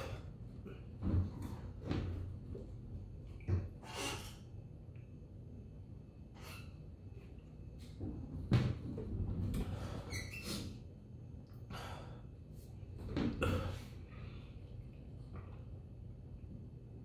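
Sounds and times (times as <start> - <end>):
man gasping breaths: 11.7 - 12.4.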